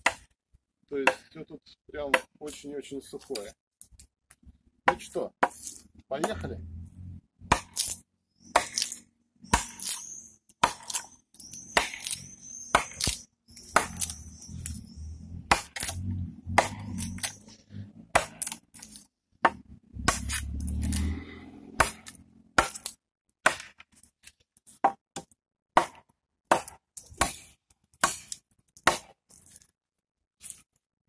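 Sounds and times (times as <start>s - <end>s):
knife chopping wood: 0.0s - 0.3s, 1.0s - 1.2s, 2.0s - 2.6s, 4.8s - 6.5s, 7.4s - 14.8s, 15.4s - 24.1s, 24.7s - 29.2s.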